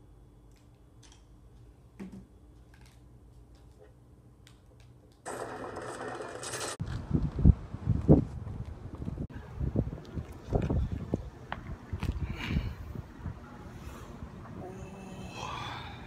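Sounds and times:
wind buffeting microphone: 0:06.8 - 0:14.6.

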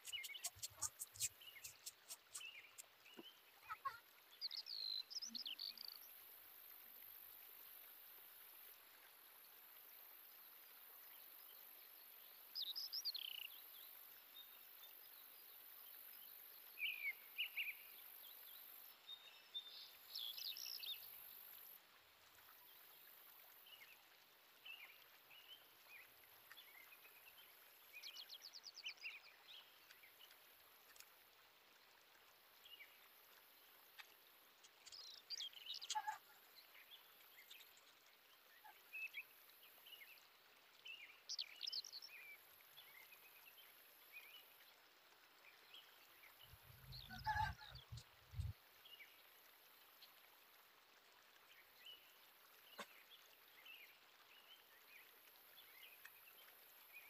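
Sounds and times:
steady high-pitched hiss: 0:00.0 - 0:03.8
faint birds chirping: 0:00.0 - 0:06.2.

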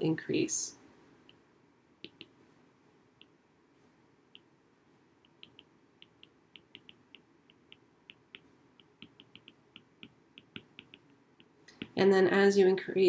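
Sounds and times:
stylus ticking on glass screen: 0:05.2 - 0:12.0.

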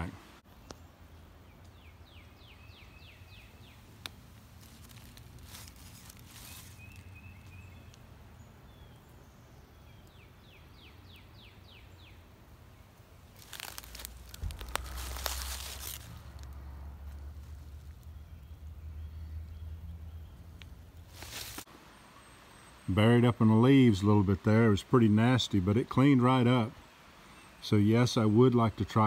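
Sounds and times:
small bird singing: 0:00.6 - 0:16.1
dry leaves rustling and crunching: 0:03.3 - 0:08.0, 0:13.2 - 0:18.5, 0:21.0 - 0:21.7.

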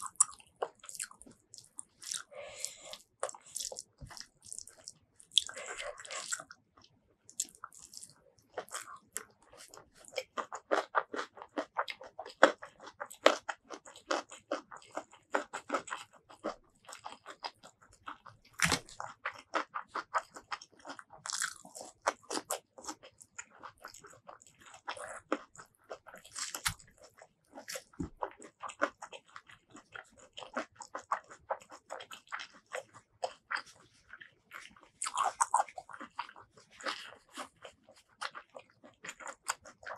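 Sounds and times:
wet chewing: 0:00.0 - 0:39.9
crunching bites: 0:18.1 - 0:23.1, 0:24.9 - 0:28.9.

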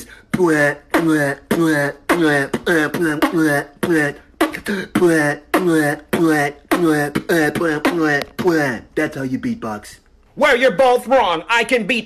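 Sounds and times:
person beatboxing: 0:00.0 - 0:09.2.

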